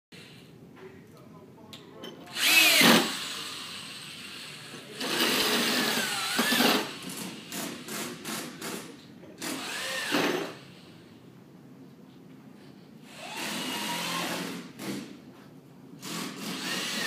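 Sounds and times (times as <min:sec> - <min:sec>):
electric drill running: 0:02.3 - 0:08.4, 0:09.4 - 0:10.6, 0:13.1 - 0:14.6, 0:16.0 - 0:17.0.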